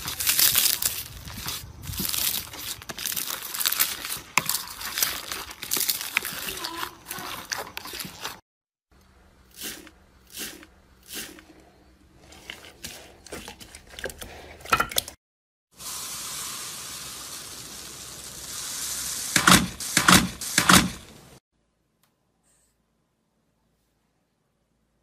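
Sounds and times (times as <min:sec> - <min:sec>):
steady hiss: 0:15.8 - 0:21.3.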